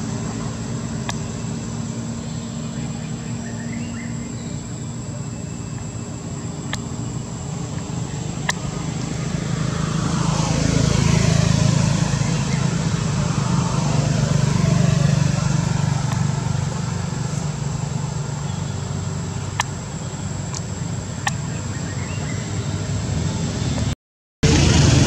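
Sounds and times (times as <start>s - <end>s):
low engine rumble: 0.0s - 25.0s
sharp clicks: 6.6s - 7.0s, 7.6s - 9.1s, 19.5s - 19.8s.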